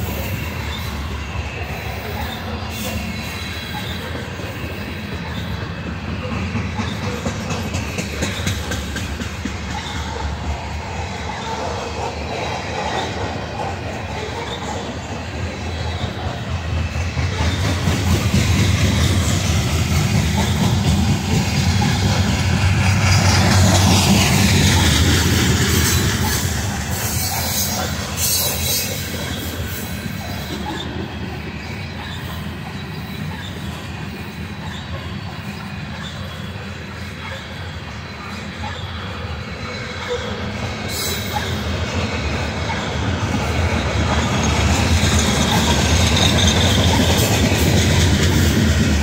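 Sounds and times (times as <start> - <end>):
freight train rumbling: 0.0 - 49.0
wheels clacking over rail joints: 0.0 - 49.0
wheels squealing: 0.0 - 49.0.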